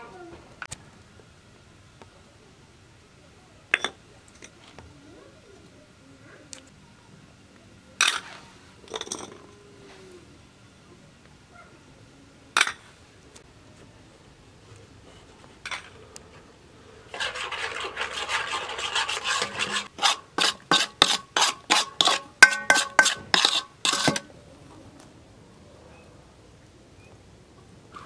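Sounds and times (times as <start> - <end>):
spoon scraping metal bowl: 17.1 - 24.3
spoon strokes ringing bowl: 17.4 - 24.3
spoon knocking on metal bowl: 22.4 - 24.3.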